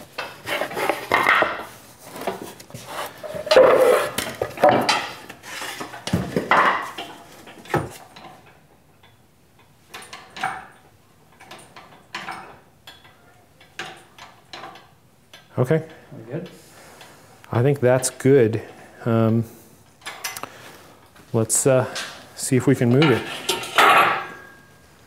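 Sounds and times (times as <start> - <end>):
wooden blocks knocking and clattering: 0.1 - 2.5, 3.2 - 8.4.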